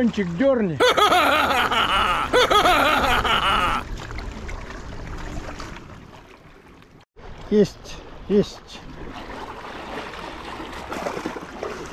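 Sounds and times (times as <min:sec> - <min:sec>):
man chuckling: 0:00.8 - 0:03.8.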